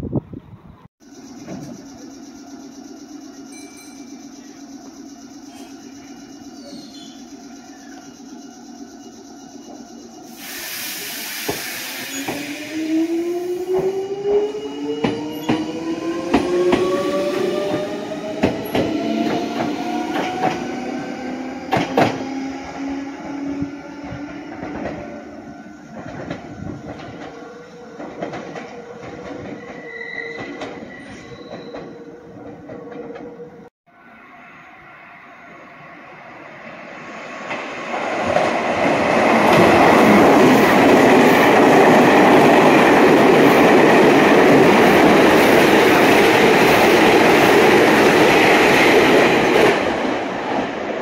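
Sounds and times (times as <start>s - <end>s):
electric train motor whine: 1.0s - 10.4s
air hiss: 10.2s - 13.2s
wheels clicking over rail joints: 25.9s - 30.9s.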